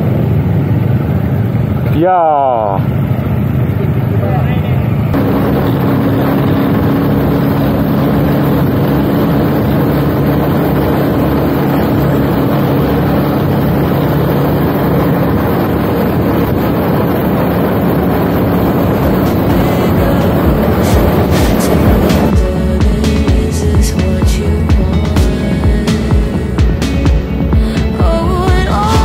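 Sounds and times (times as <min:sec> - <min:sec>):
motorcycle engine running: 0:00.0 - 0:29.0
wind on microphone: 0:05.1 - 0:27.0.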